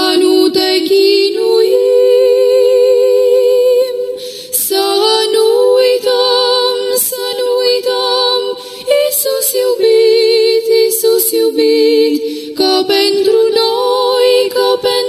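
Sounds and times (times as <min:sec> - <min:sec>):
unaccompanied voices singing a hymn: 0:00.0 - 0:15.0.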